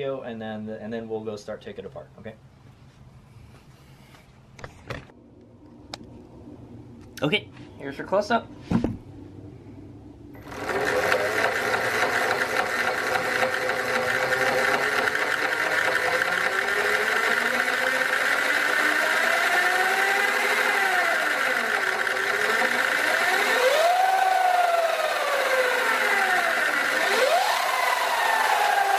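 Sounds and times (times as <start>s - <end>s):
electric motor drivetrain whine: 10.4s - 28.9s.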